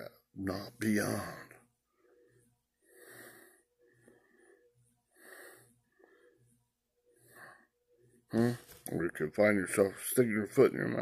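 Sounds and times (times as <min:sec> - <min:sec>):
man breathing through nose: 0:02.0 - 0:08.7.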